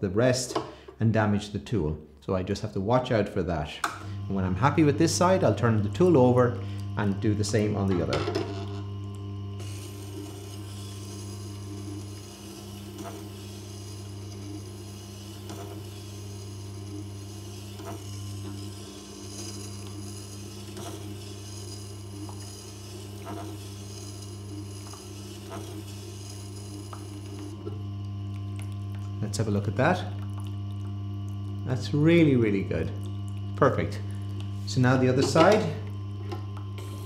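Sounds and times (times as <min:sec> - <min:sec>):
grinder motor hum: 0:02.4 - 0:37.0
steel scraping on grindstone: 0:09.6 - 0:27.5.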